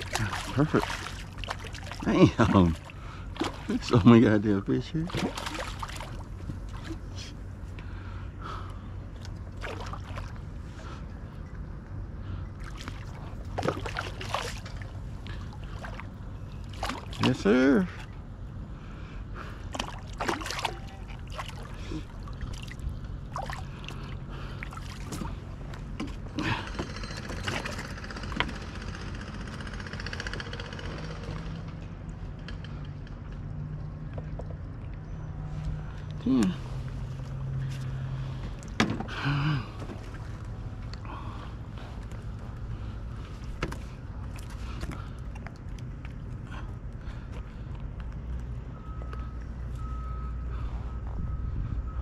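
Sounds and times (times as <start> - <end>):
fish splashing at water surface: 0.0 - 3.9, 5.0 - 7.0, 9.2 - 10.5, 12.6 - 17.4, 19.7 - 25.4
steady low hum: 0.0 - 30.0, 31.8 - 52.0.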